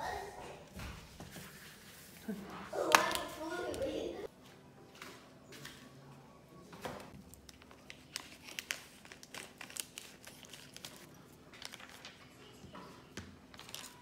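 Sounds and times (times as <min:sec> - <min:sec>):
crinkling rustles: 0:07.1 - 0:12.5, 0:13.4 - 0:14.0.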